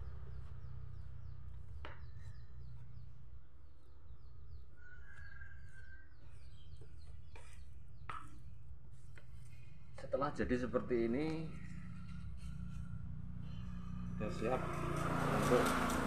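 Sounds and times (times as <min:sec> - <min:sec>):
birds chirping: 0:00.0 - 0:16.0
steady low hum: 0:08.6 - 0:16.0.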